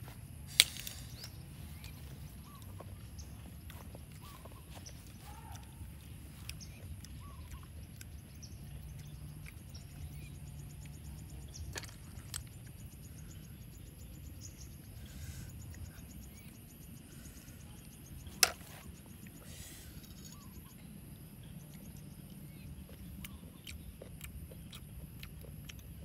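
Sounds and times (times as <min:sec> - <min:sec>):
low outdoor background: 0:00.0 - 0:26.0
snail shells clicking: 0:00.5 - 0:02.0, 0:06.0 - 0:13.0.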